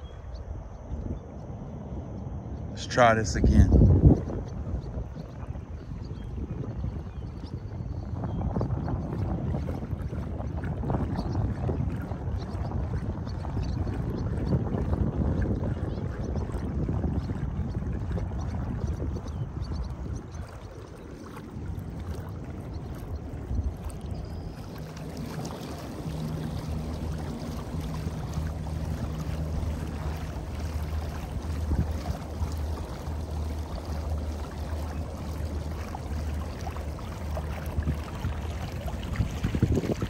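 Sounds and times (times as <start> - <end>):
low pulsing hum: 0.0 - 40.0
wind on microphone: 0.0 - 40.0
water splashing along kayak hull: 3.8 - 40.0.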